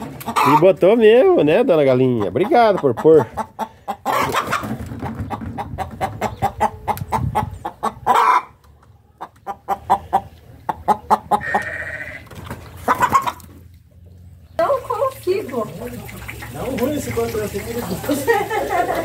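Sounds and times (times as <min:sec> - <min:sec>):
hen cackling: 0:00.0 - 0:00.8, 0:02.0 - 0:13.6.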